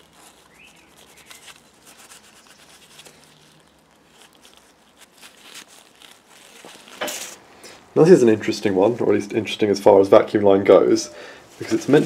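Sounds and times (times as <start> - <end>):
gloved hands rubbing hose: 0.0 - 7.4.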